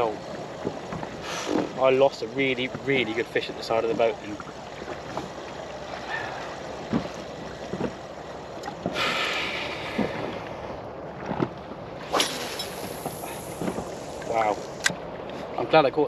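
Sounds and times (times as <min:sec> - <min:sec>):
water lapping against boat: 0:00.0 - 0:16.0
fishing line hissing off spool: 0:12.1 - 0:14.3.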